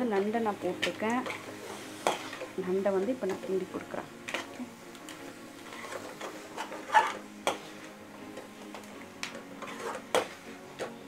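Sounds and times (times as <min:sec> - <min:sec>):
metal spoon scraping pan: 0:00.8 - 0:02.6, 0:05.6 - 0:07.7, 0:09.6 - 0:10.3.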